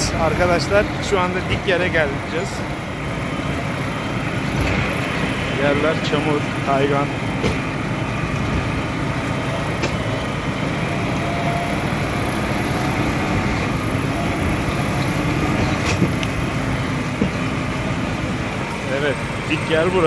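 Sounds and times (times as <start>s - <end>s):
tractor engine running: 0.0s - 20.0s
sharp knocks: 7.4s - 7.8s, 9.7s - 10.1s.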